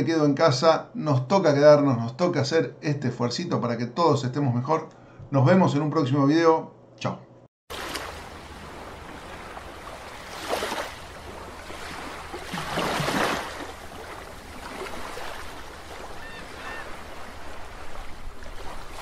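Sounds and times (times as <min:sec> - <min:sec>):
underwater watery rush: 0:07.7 - 0:19.0.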